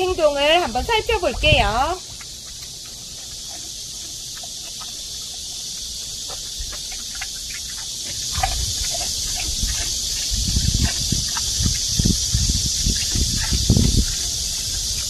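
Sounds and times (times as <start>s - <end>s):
pig crunching ice: 1.1s - 15.0s.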